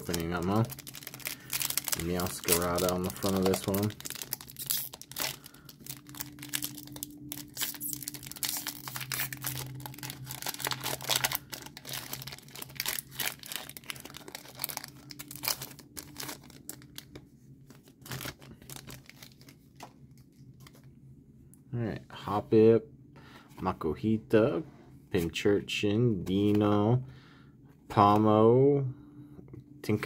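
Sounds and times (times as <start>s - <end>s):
foil wrapper tearing and crinkling: 0.0s - 17.2s, 17.8s - 19.6s.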